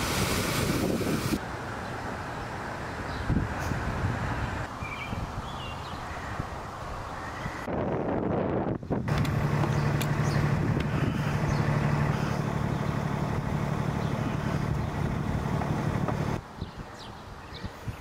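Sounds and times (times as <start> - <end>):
vehicle engine idling: 9.1 - 16.4.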